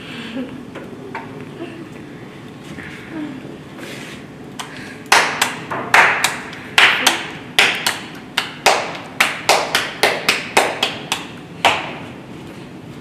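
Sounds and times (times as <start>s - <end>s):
hands slapping dough flat: 4.6s - 12.1s.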